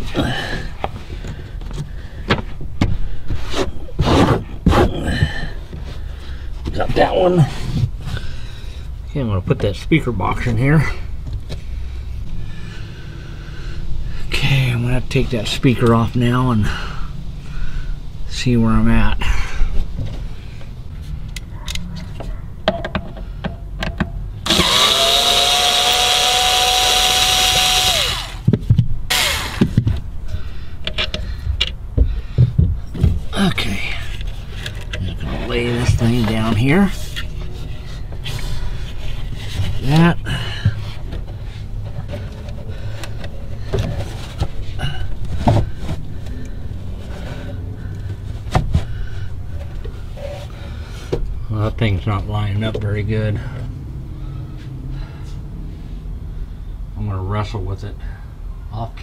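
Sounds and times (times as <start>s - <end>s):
handling knocks and clicks: 21.3s - 24.3s
power driver motor whine: 24.4s - 28.5s, 29.1s - 29.7s
box knocking and scraping: 45.3s - 46.0s.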